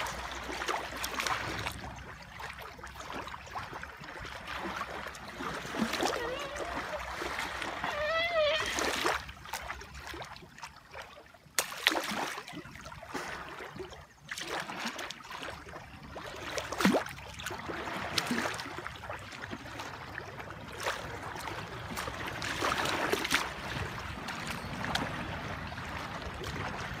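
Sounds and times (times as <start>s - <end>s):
sharp splashes: 0.0s - 20.0s, 20.7s - 27.0s
water sloshing and lapping: 0.0s - 27.0s.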